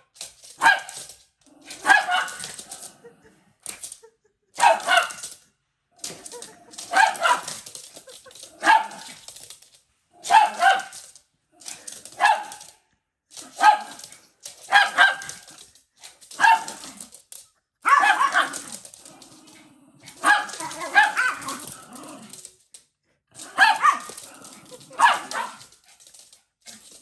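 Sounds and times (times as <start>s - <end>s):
small dogs barking: 0.6s - 1.1s, 1.7s - 2.9s, 4.6s - 5.4s, 6.1s - 7.7s, 8.5s - 9.2s, 10.2s - 11.1s, 12.1s - 12.8s, 13.4s - 15.6s, 16.3s - 17.0s, 17.8s - 18.8s, 20.1s - 22.2s, 23.4s - 25.8s.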